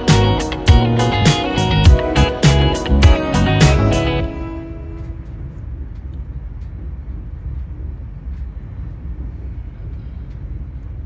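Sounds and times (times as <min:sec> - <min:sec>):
train rumbling inside carriage: 0:04.5 - 0:11.0.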